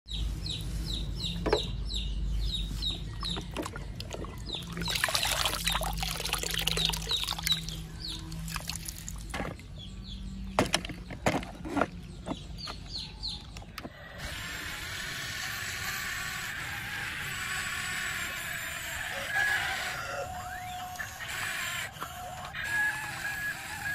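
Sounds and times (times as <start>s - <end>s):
steady outdoor hiss: 0.1s - 3.2s
bird chirps: 0.1s - 18.5s
muddy water splashing: 3.4s - 9.7s
plastic toys knocking and scraping: 10.6s - 13.0s.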